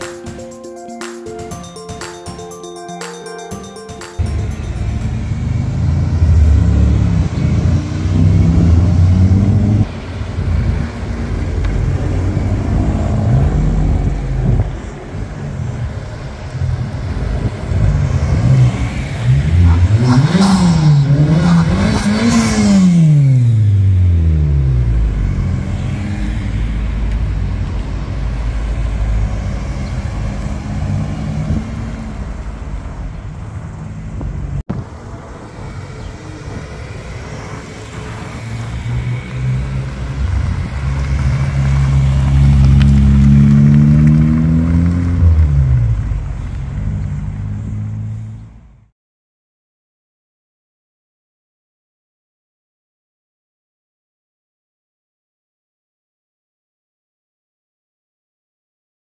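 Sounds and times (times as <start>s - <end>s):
tyre and road noise: 4.3s - 48.8s
car engine revving: 5.0s - 32.8s, 36.4s - 48.3s.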